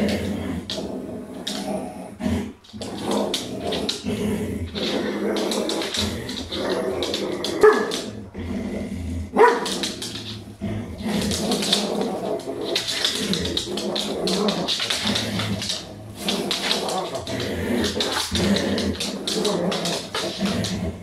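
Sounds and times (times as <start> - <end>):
dog growling: 0.0 - 21.0
dog barking: 7.6 - 8.0, 9.4 - 9.7.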